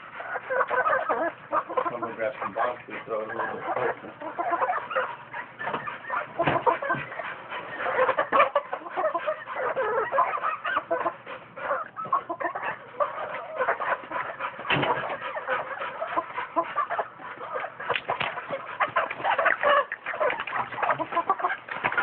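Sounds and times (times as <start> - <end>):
chickens clucking: 0.0 - 22.0.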